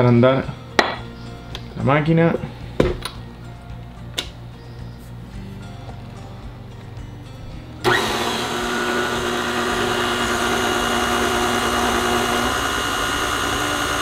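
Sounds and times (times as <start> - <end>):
stand mixer motor running: 7.8 - 14.0.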